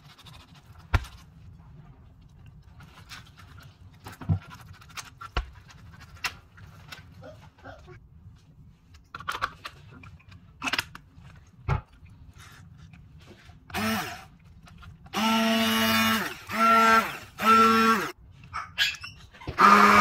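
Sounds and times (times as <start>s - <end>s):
stick blender whining: 13.7s - 14.3s, 15.1s - 18.2s, 19.5s - 20.0s.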